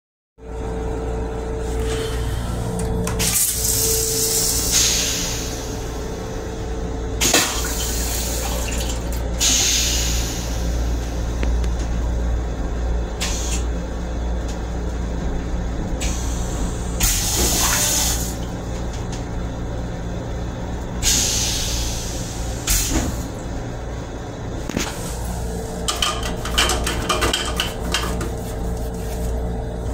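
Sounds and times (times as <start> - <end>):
railcar low hum: 0.4 - 29.9
toilet rinse water hissing: 3.5 - 5.9, 7.2 - 10.9, 16.0 - 18.4.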